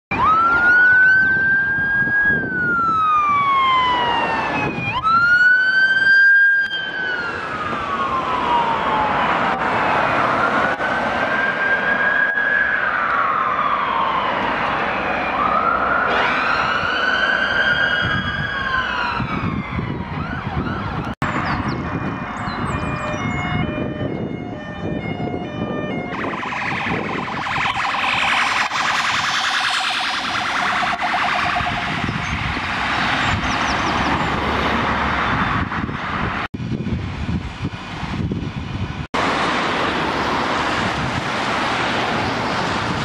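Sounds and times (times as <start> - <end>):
faint different siren: 0.1 - 36.0
ambulance siren wailing: 0.1 - 36.4
road traffic rumble: 0.1 - 43.0.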